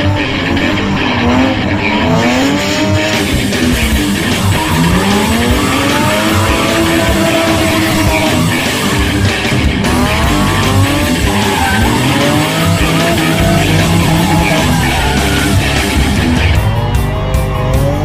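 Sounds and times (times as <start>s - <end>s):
car engine revving: 0.0s - 18.0s
guitar music: 0.0s - 18.0s
tyre squeal: 4.1s - 16.6s.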